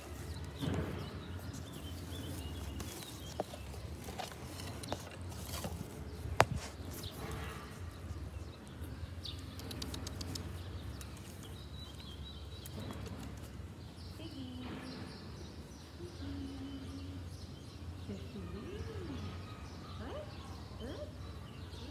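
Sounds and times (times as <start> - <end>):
birds chirping: 0.0 - 21.9.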